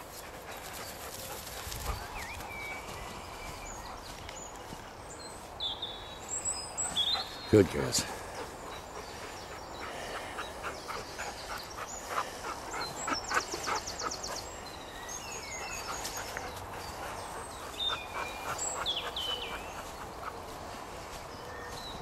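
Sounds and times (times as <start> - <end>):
footsteps through long grass: 0.0 - 6.7, 18.6 - 22.0
birds singing: 0.0 - 22.0.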